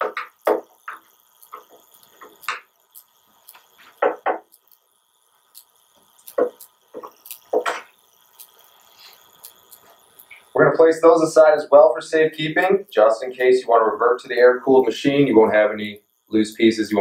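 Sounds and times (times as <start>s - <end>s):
sharp clicks and knocks: 0.0s - 4.9s, 5.5s - 10.5s.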